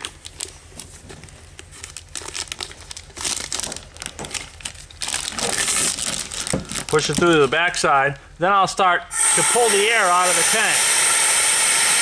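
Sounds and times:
plastic film crinkling: 0:00.0 - 0:08.2.

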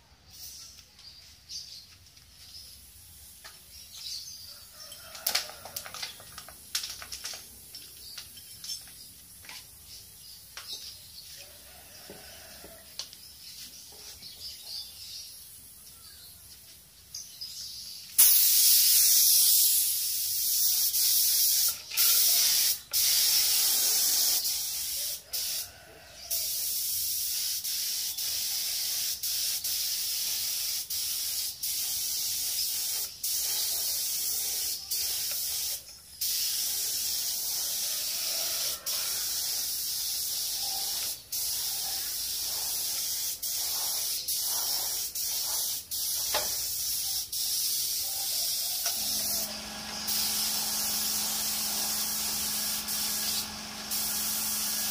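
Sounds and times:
spray gun hissing: 0:18.2 - 0:25.7, 0:26.3 - 0:54.9.

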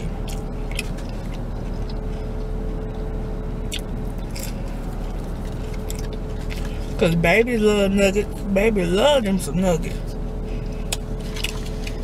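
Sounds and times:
person eating clicks and smacks: 0:00.0 - 0:02.4, 0:03.7 - 0:06.8, 0:10.9 - 0:12.0
car cabin hum: 0:00.0 - 0:12.0.

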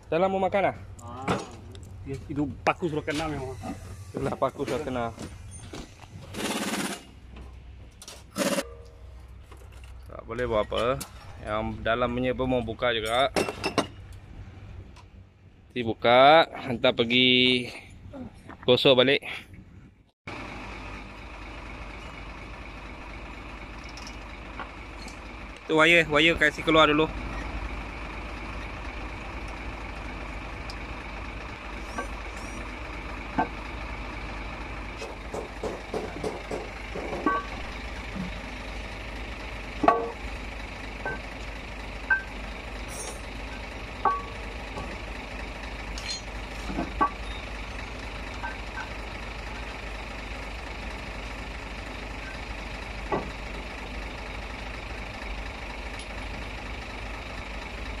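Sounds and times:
metal tools clinking and knocking: 0:13.0 - 0:14.0, 0:35.0 - 0:37.7, 0:42.1 - 0:45.0, 0:45.9 - 0:47.8
steady mechanical hum: 0:19.4 - 0:58.0.

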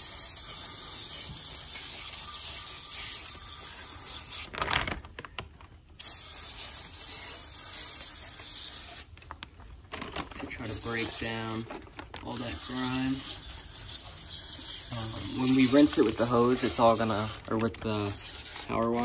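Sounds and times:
aerosol spray hissing: 0:06.0 - 0:09.1, 0:12.5 - 0:17.4.

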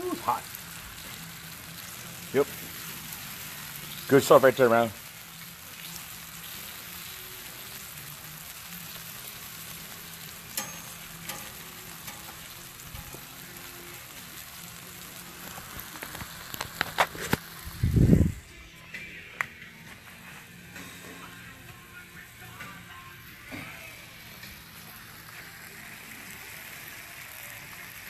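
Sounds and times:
steak sizzling on a griddle: 0:00.0 - 0:28.0
sharp pops and clicks: 0:15.7 - 0:17.5.

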